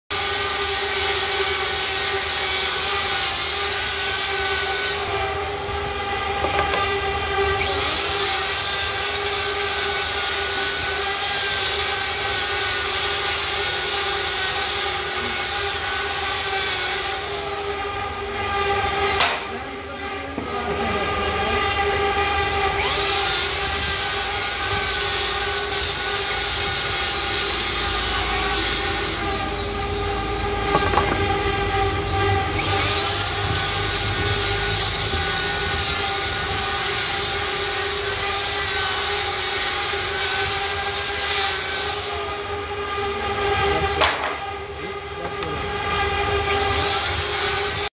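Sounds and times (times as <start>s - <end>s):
grinder motor whine: 0.1s - 47.9s
disc rasping on wood: 22.8s - 47.9s.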